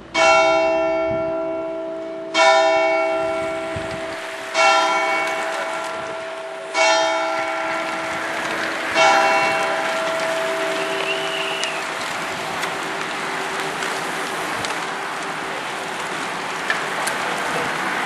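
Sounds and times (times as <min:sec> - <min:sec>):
church bell tolling: 0:00.0 - 0:11.1.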